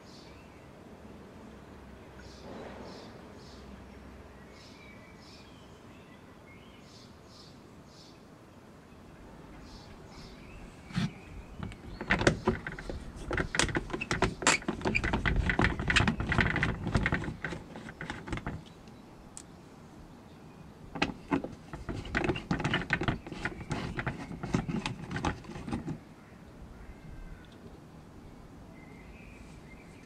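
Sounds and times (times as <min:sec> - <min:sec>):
screwdriver clicking and scraping: 0:10.9 - 0:18.7, 0:21.0 - 0:26.0.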